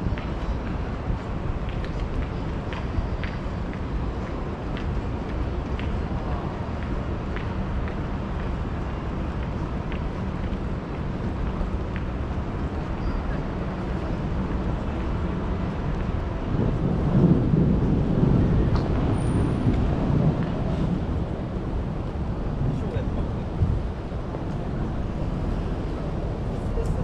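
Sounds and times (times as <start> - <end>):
low rumble of traffic: 0.0 - 27.0.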